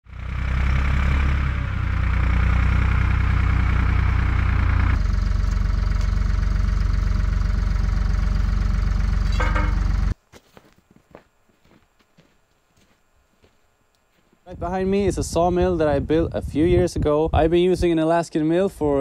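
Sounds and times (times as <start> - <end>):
engine idling: 0.1 - 10.2.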